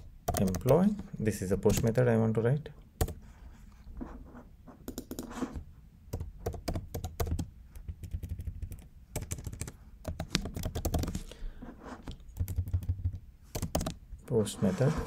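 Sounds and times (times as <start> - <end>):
typing on computer keyboard: 0.0 - 1.0, 6.1 - 11.2, 12.3 - 14.0.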